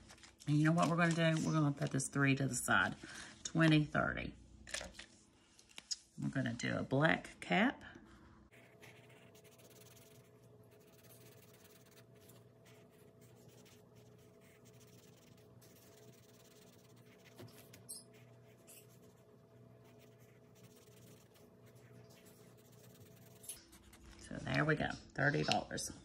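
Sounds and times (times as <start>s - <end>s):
low steady hum: 0.0s - 26.0s
pen scratching on paper: 8.5s - 24.0s.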